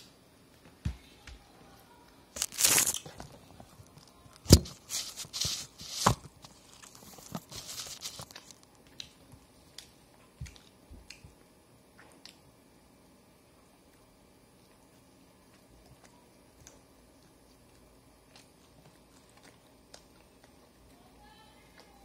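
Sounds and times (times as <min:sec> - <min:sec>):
material tearing and crinkling: 0:02.4 - 0:03.1.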